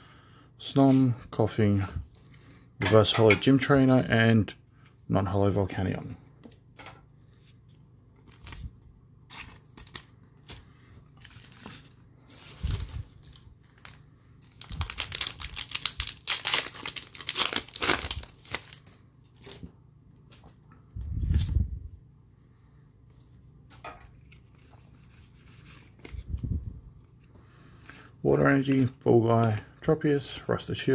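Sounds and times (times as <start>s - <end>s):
foil wrapper crinkling and tearing: 12.4s - 19.6s.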